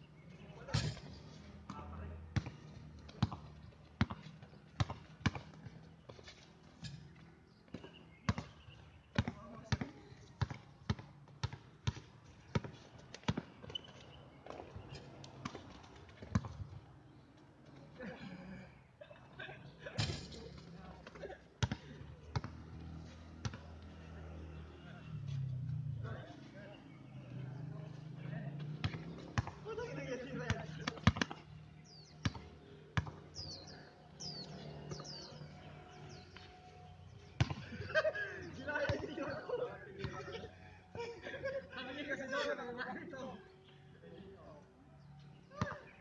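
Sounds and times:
basketball bouncing on hard court: 2.4s - 2.6s, 3.2s - 5.6s, 7.7s - 13.9s, 16.2s - 16.6s, 28.8s - 29.6s, 30.5s - 31.4s, 32.2s - 33.2s, 37.4s - 37.6s.

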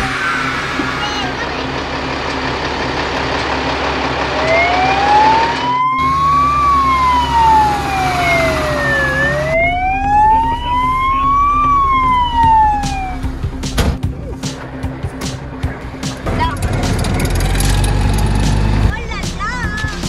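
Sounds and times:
fire truck siren wailing: 0.0s - 13.6s.

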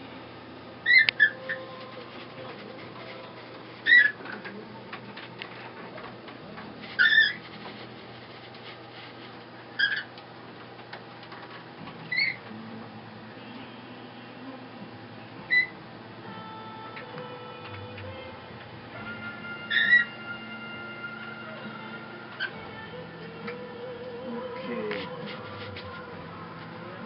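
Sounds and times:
low steady hum: 0.0s - 27.0s
wooden mill squeaking: 0.9s - 4.5s, 6.8s - 8.8s.

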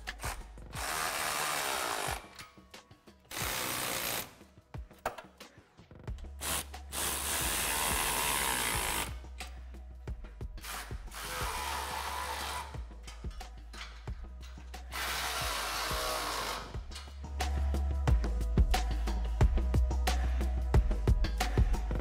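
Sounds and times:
ratchet wrench ratcheting: 3.2s - 4.3s, 10.6s - 17.3s.

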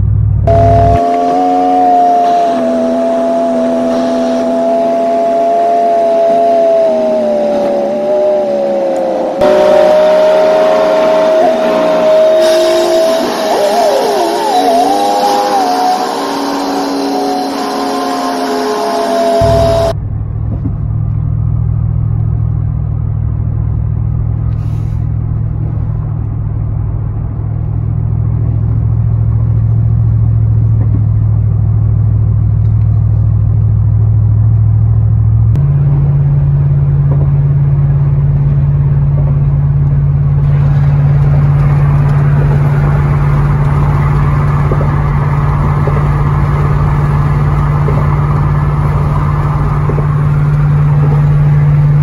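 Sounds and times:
truck engine and tyres droning: 0.0s - 52.0s
road hiss: 11.4s - 19.9s, 24.5s - 25.2s.

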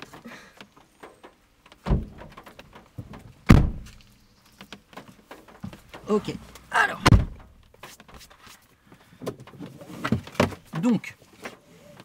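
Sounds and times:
car door thumps: 1.8s - 4.0s, 7.0s - 7.6s.

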